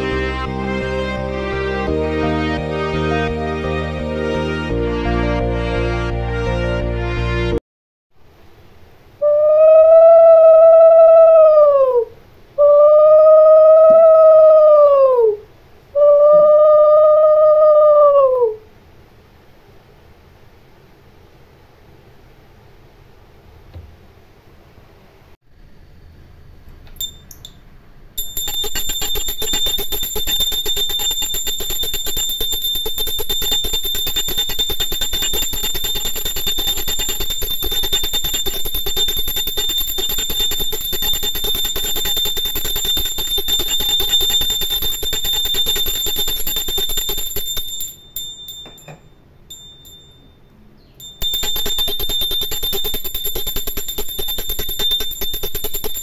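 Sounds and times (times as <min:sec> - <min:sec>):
hand bell ringing rapidly: 0:28.2 - 0:50.3, 0:51.0 - 0:56.0.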